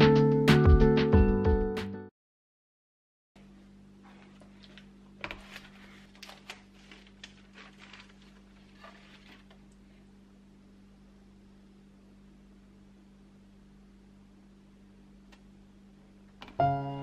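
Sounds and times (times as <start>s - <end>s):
steady low hum: 3.4s - 17.0s.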